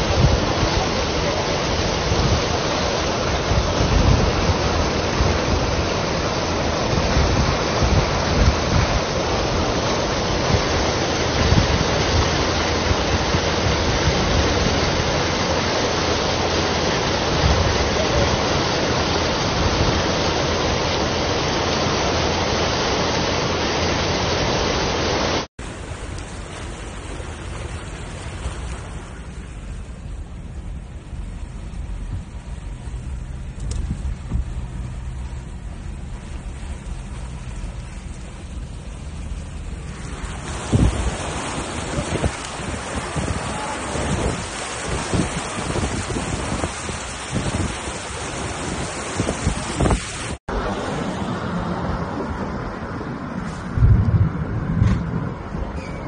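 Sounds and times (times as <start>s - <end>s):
wind rumbling on microphone: 0.0s - 23.5s, 25.6s - 56.0s
floodwater rushing: 0.0s - 56.0s
steady noise: 23.2s - 55.7s.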